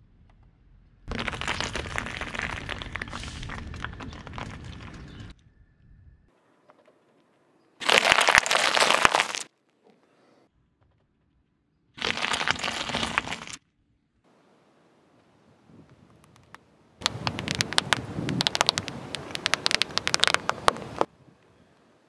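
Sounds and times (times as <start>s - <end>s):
tyre crushing grapes and pods: 1.1s - 5.1s, 7.8s - 9.5s, 12.0s - 13.6s, 17.0s - 21.1s.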